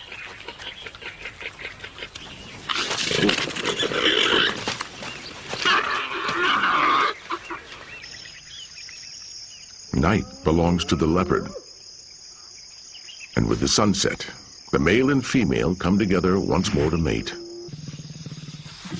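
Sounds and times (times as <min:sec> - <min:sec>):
warthogs squealing: 0:02.7 - 0:04.6, 0:05.6 - 0:07.7, 0:10.0 - 0:11.6.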